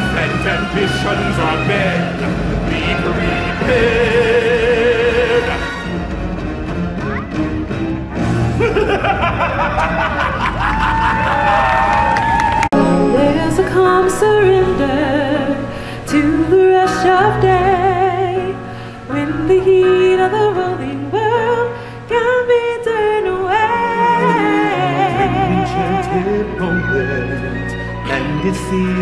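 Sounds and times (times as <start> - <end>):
backing music: 0.0 - 29.0
woman singing with vibrato: 12.7 - 26.3.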